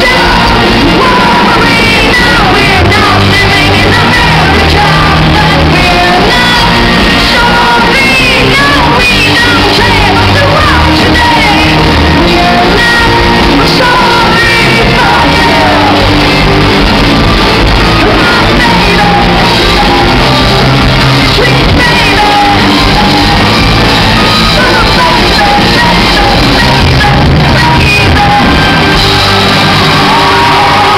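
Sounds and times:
woman singing and shouting: 0:00.0 - 0:16.1, 0:18.0 - 0:20.2, 0:21.3 - 0:23.4
live rock band playing: 0:00.0 - 0:30.9.

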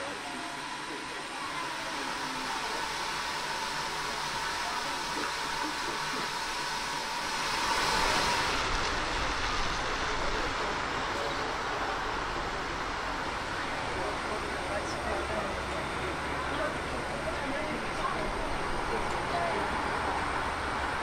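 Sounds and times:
steam hissing: 0:00.0 - 0:21.0.

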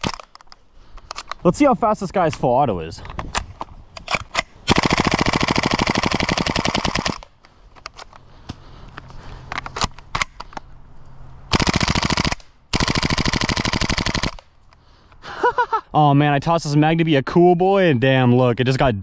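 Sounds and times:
airsoft rifle firing full auto: 0:04.7 - 0:07.2, 0:11.5 - 0:14.4.

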